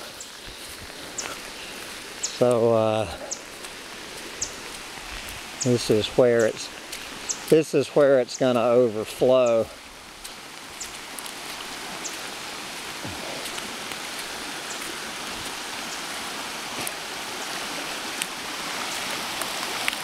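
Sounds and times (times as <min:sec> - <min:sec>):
creek rushing: 0:00.0 - 0:20.0.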